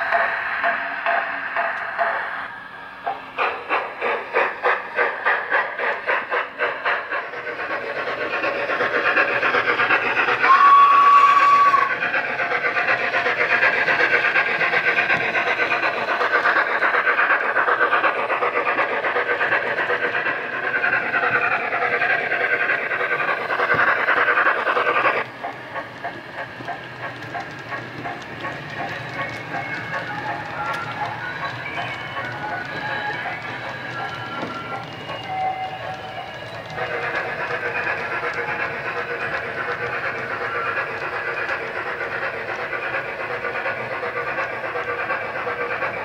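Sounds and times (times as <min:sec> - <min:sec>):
steam locomotive chuffing: 0:00.0 - 0:46.0
steam whistle blast: 0:10.4 - 0:11.9.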